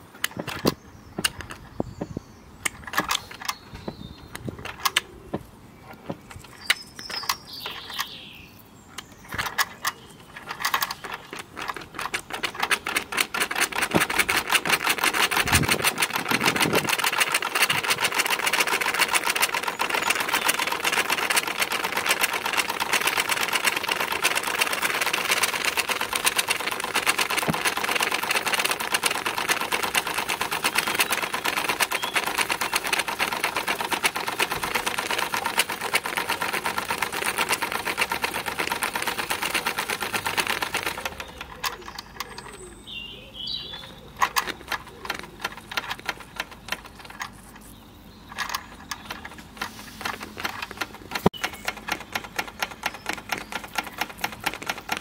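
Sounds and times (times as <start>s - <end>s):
model steam engine running: 10.6s - 41.8s, 48.4s - 55.0s.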